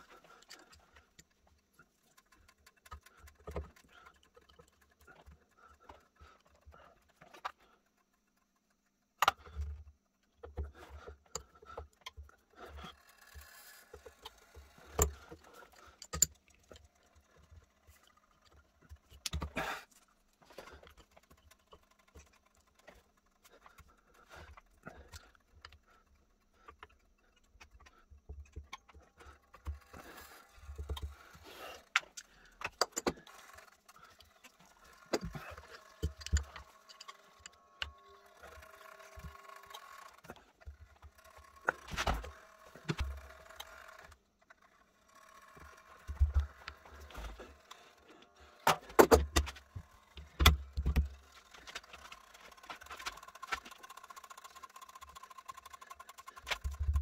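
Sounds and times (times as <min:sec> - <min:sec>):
metal spanner clinking and knocking: 0:34.2 - 0:44.1.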